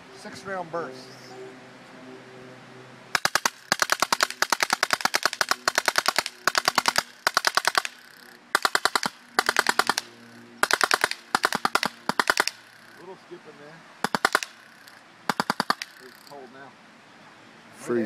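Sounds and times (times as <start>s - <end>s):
machine gun firing rapid bursts: 3.2s - 13.0s, 14.0s - 16.3s.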